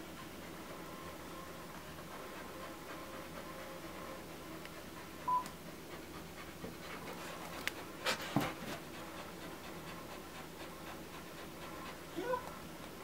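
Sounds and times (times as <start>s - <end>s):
dogs panting: 0.0s - 13.0s.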